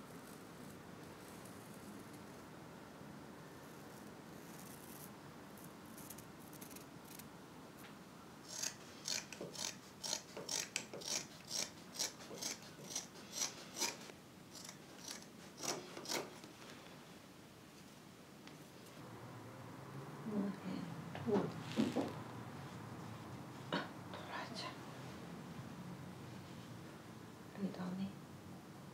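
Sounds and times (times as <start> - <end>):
scissors snipping fabric: 8.5 - 14.0.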